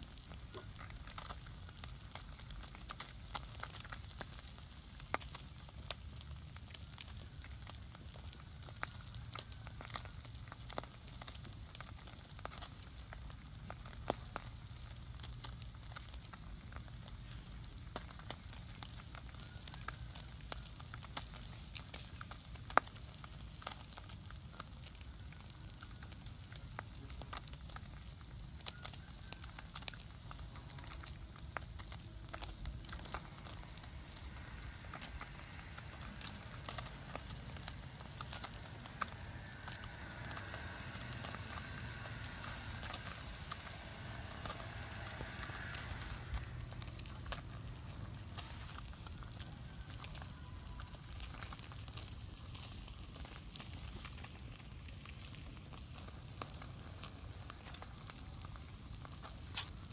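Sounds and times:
wood fire crackling and popping: 0.0 - 59.9
low steady rumble: 29.6 - 59.9.

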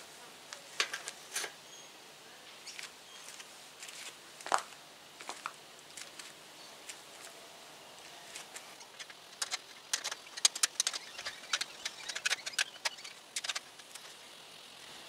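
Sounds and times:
clicks and knocks of bike parts: 0.8 - 1.6, 8.4 - 14.1.

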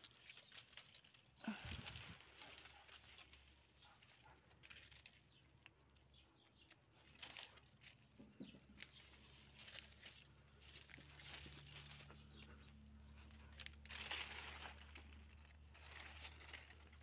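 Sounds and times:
soft snaps of vines: 0.0 - 11.9
dry leaves rustling and crackling: 0.0 - 17.0.

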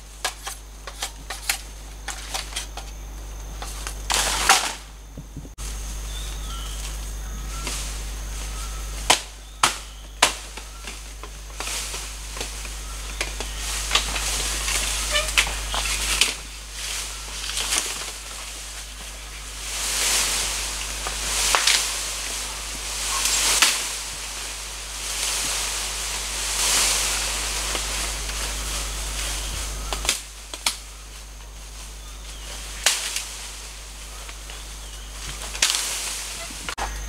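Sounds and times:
bamboo leaves rustling: 0.0 - 37.0
blade chopping bamboo: 9.0 - 16.4.

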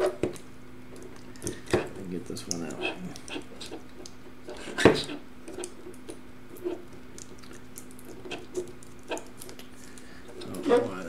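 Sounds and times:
light clicks and taps: 1.0 - 3.3.

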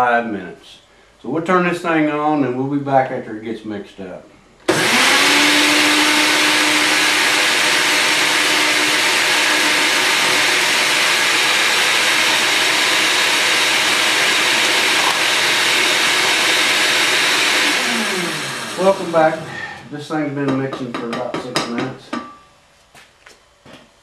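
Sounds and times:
blender running: 4.7 - 19.9.

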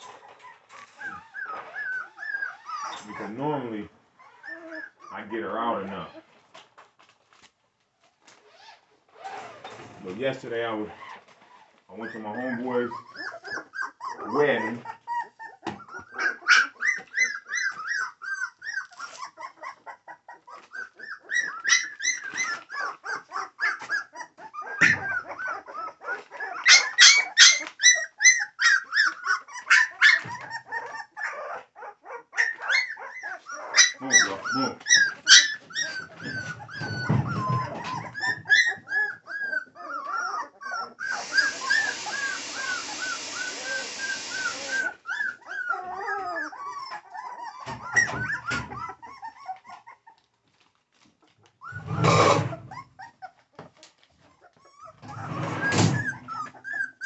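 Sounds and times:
puppies yipping: 0.0 - 5.4, 10.9 - 57.0
puppies whining and crying: 0.0 - 7.1, 10.9 - 57.0
steady hiss: 41.1 - 44.8.

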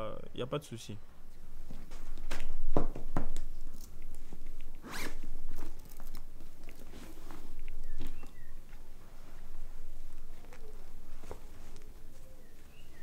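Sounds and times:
canvas rustling: 1.3 - 13.0
zip being pulled: 4.8 - 6.0.

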